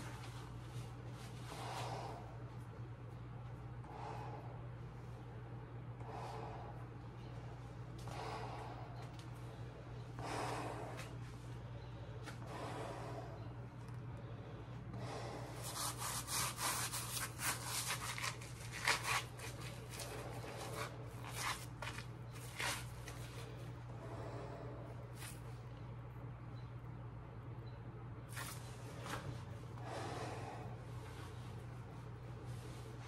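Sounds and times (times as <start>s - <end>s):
low hum: 0.0s - 33.0s
work gloves rustling: 15.6s - 23.6s
breathing through respirator: 29.8s - 31.3s.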